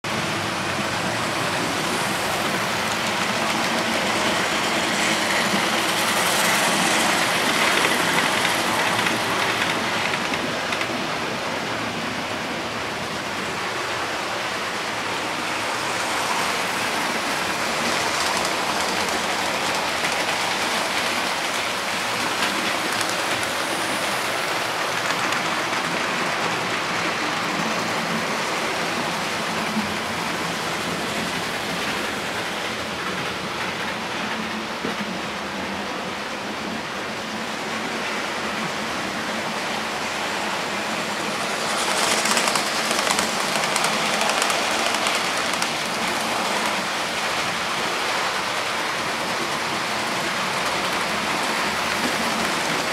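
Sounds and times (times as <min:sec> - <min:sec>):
model train rattling hiss: 0:41.3 - 0:46.8.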